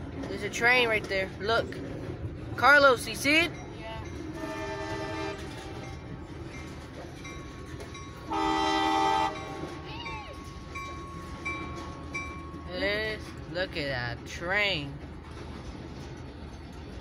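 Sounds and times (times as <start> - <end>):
locomotive air horn blasts: 4.4 - 5.6, 8.3 - 9.7.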